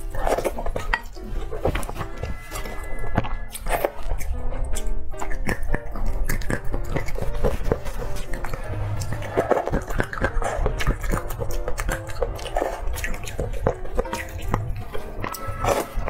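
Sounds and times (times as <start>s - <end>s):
light background music: 0.0s - 16.0s
wet chewing: 0.0s - 16.0s
chopsticks stirring in metal bowl: 5.4s - 16.0s.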